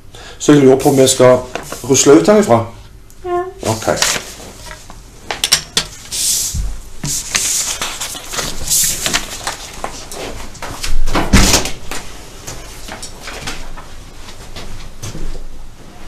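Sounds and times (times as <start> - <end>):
paper and clothing rustle: 3.6 - 4.9, 7.1 - 11.0.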